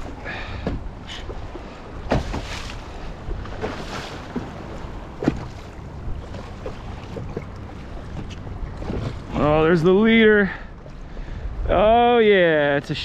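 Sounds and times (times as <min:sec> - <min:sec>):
wind buffeting microphone: 0:00.0 - 0:12.2
sharp knocks and clunks: 0:00.6 - 0:00.9, 0:02.0 - 0:02.6.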